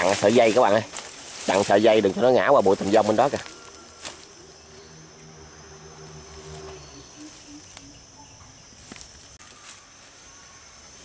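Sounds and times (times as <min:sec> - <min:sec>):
insects chirring: 0:00.0 - 0:11.0
faint low hum: 0:02.7 - 0:11.0.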